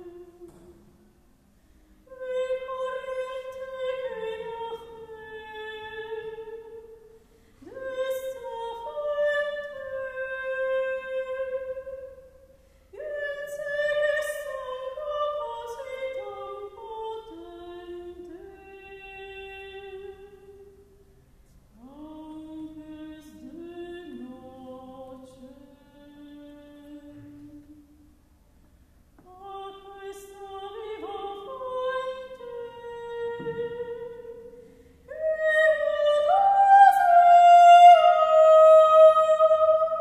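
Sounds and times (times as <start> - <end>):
soprano singing slow melody: 0.0 - 1.1, 1.7 - 21.1, 21.7 - 28.0, 29.2 - 40.0.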